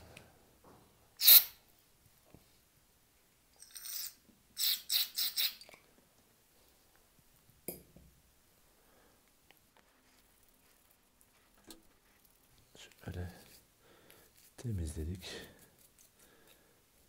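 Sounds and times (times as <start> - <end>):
aerosol spray hissing bursts: 1.2 - 1.6, 4.6 - 5.6.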